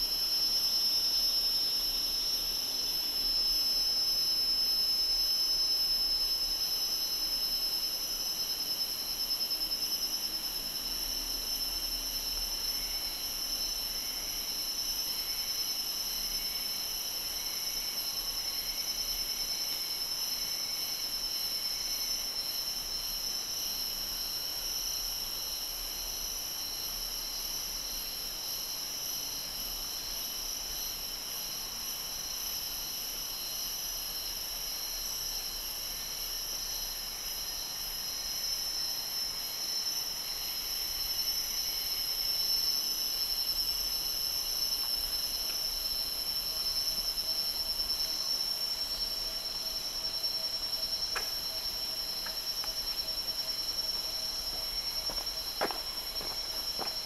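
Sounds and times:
insects buzzing: 26.6s - 57.0s.

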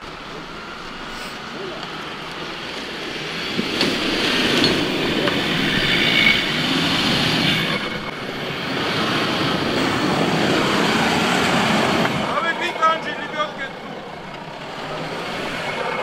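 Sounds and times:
vehicle engine rumble: 0.0s - 16.0s
faint high squeal: 5.4s - 8.1s.

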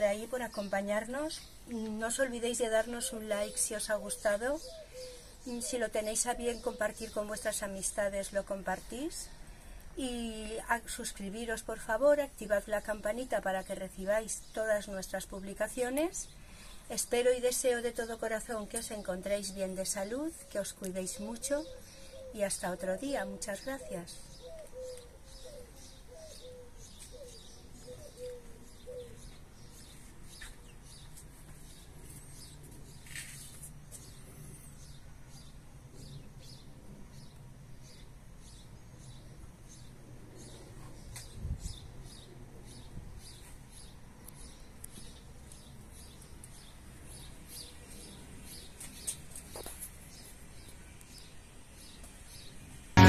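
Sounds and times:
small birds chirping: 0.0s - 53.0s
dove cooing: 3.0s - 5.8s, 23.8s - 29.2s.

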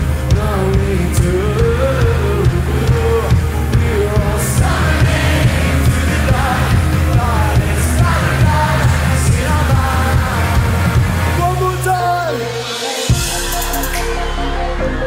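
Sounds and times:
bass and drum beat: 0.0s - 15.0s
live pop-rock band playing: 0.0s - 15.0s.

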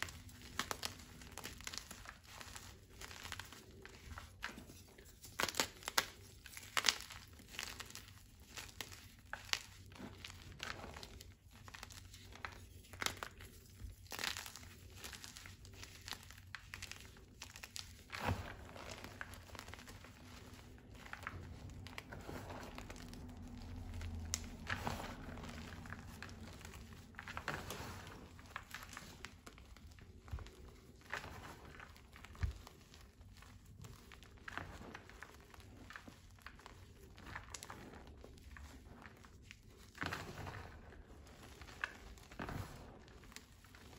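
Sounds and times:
hands crumbling chalk: 0.0s - 43.9s.

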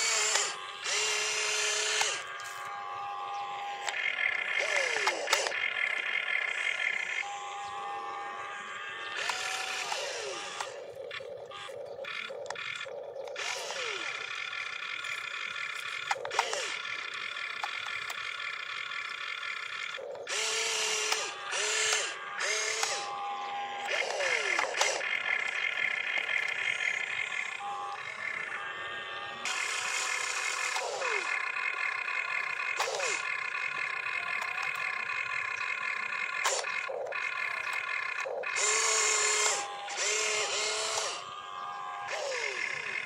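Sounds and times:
small electric motors whining: 0.0s - 43.0s.

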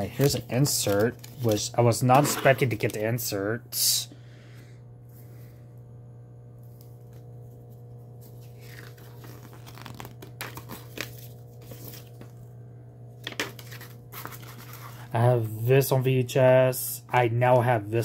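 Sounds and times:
paper rustling and crinkling: 0.0s - 3.1s, 6.8s - 12.4s, 13.2s - 15.1s
faint low hum: 0.0s - 18.0s.

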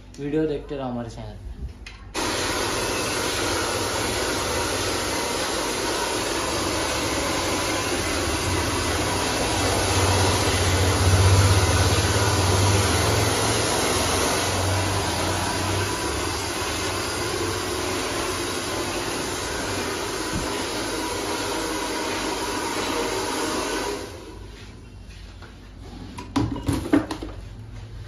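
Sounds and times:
hair dryer blowing: 2.1s - 24.6s.

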